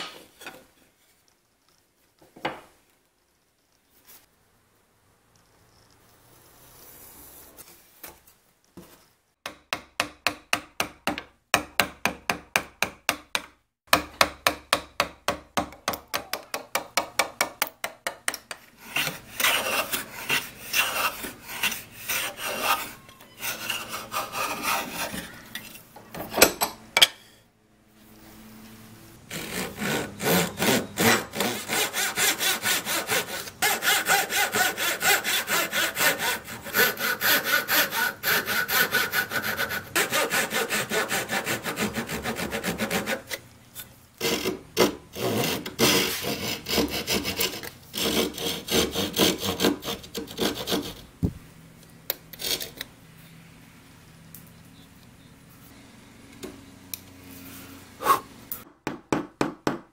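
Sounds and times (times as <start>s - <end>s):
hand tool scraping wood: 18.5s - 25.8s, 29.3s - 51.0s
hand saw cutting wood: 18.7s - 25.4s, 29.3s - 43.4s, 44.2s - 51.0s.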